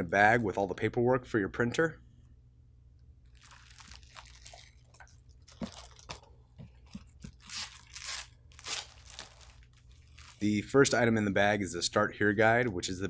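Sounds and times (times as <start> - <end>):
plastic bag crinkling: 3.2 - 10.5.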